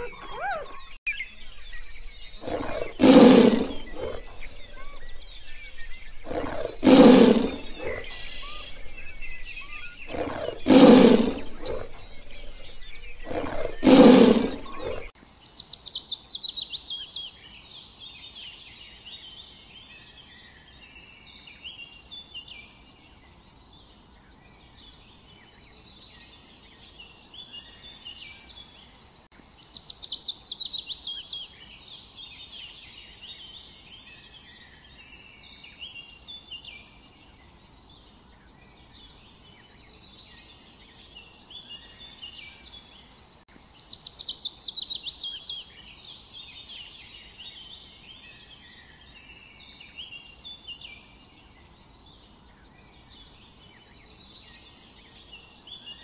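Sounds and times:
tiger roaring: 0.0 - 1.0, 2.2 - 15.1
birdsong chirps and chatter: 0.0 - 56.0.

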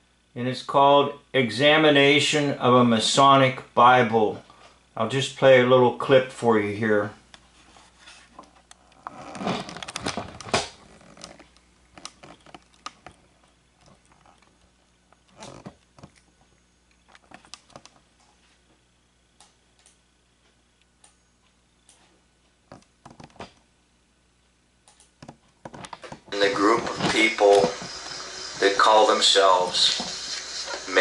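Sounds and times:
rustling scrape: 7.5 - 8.4.

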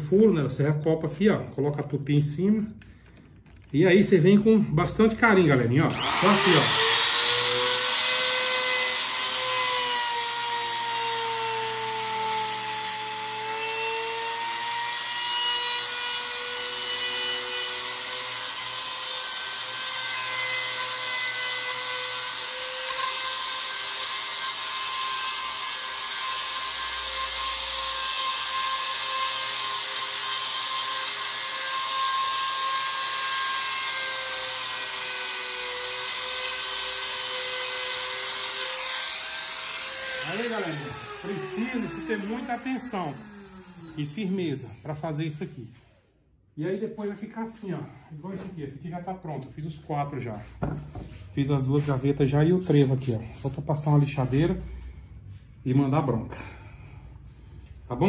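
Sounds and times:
trim router whining: 5.1 - 45.2
router bit rasping wood: 5.1 - 46.0.

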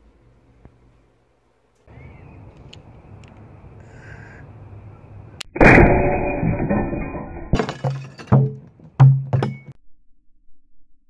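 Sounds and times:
ceramic crock shattering: 5.6 - 9.8.

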